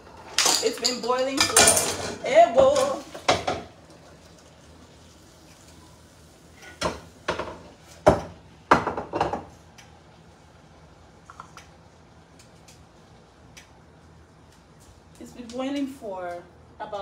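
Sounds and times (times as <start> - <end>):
pots and utensils clattering: 0.0 - 3.8.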